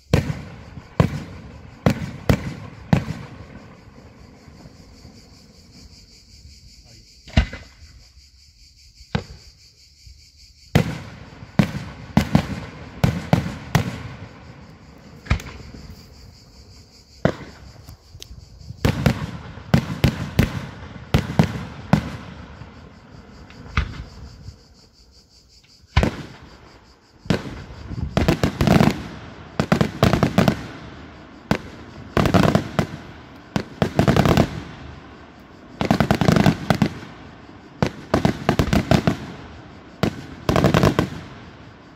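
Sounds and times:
fireworks bangs and cracks: 0.1 - 4.6, 10.7 - 15.8, 17.2 - 17.8, 18.8 - 24.2, 25.9 - 26.5, 27.2 - 41.9.

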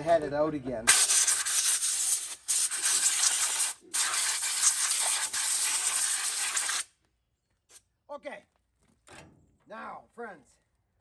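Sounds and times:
compressed air hissing: 0.9 - 6.9.

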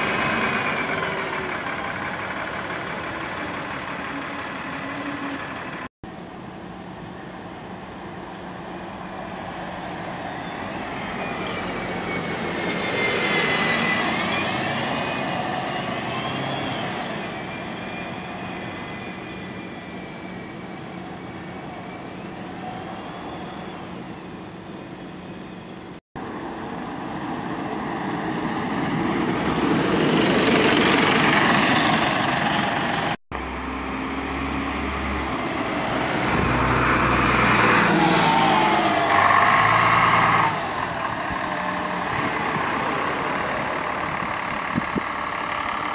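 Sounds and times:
bus engines whining: 0.0 - 45.9
high squeal: 9.9 - 26.0, 28.2 - 29.9, 44.2 - 45.9.

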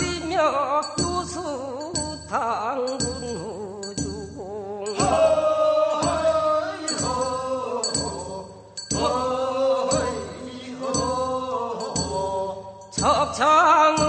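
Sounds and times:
chant-like folk singing: 2.9 - 14.0
ringing bell strikes: 4.9 - 13.0.

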